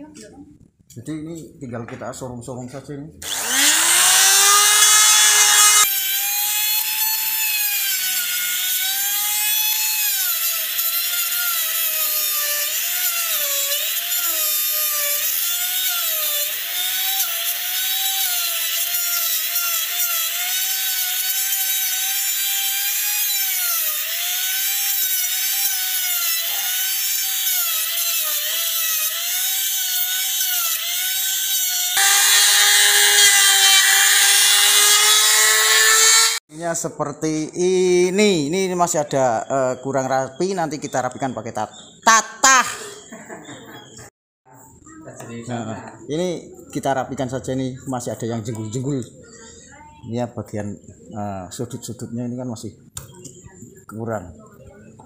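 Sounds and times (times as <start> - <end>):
router whining cutting wood: 3.2 - 36.4.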